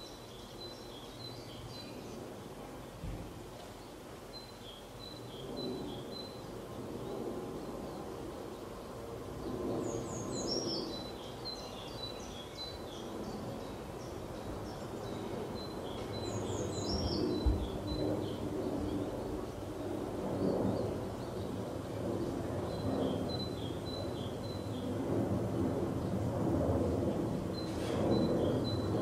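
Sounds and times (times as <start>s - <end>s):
songbirds chirping: 0.0s - 29.0s.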